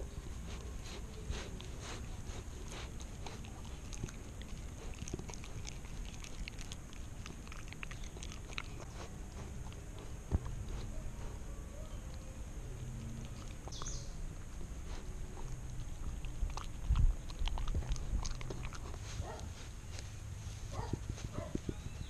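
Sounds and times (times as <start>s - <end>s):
puppy chewing: 0.0s - 22.0s
small mouth clicks: 2.8s - 10.8s, 12.8s - 14.1s.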